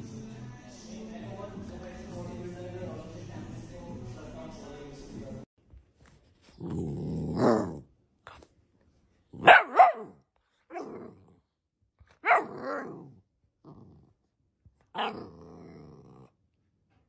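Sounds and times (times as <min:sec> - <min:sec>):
puppy growling: 0:06.6 - 0:08.4, 0:09.3 - 0:11.6, 0:12.2 - 0:14.3, 0:14.9 - 0:16.4
puppy barking and yipping: 0:09.4 - 0:10.9, 0:12.2 - 0:12.9.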